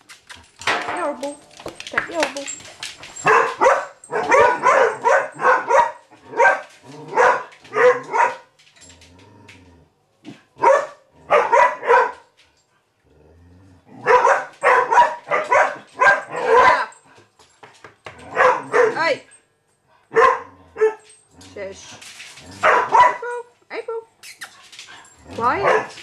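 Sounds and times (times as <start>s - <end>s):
dog barking: 3.2s - 8.5s, 10.6s - 12.3s, 14.0s - 16.9s, 18.3s - 19.1s, 20.1s - 21.0s, 22.6s - 23.4s, 25.4s - 26.0s.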